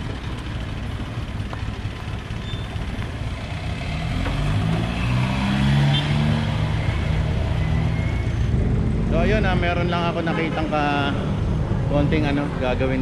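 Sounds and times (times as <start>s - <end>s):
vehicle engine running: 0.0s - 5.3s.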